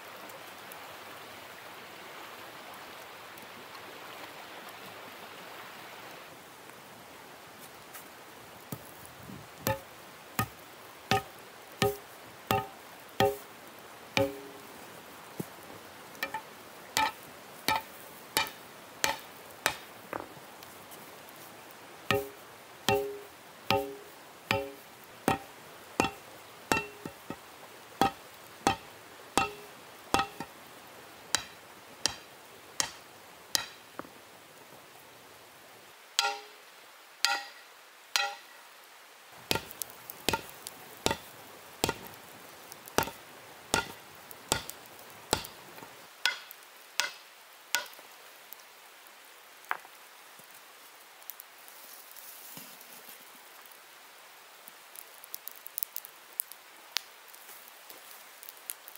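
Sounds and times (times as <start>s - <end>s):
hammerstone striking hot iron: 9.7s - 13.5s, 14.2s - 14.7s, 16.2s - 20.3s, 22.1s - 27.4s, 28.0s - 30.5s, 31.4s - 33.0s, 33.6s - 33.8s, 36.2s - 36.6s, 37.2s - 37.6s, 38.2s - 38.5s, 39.5s - 42.1s, 43.0s - 45.6s, 46.3s - 47.2s, 47.8s - 48.0s.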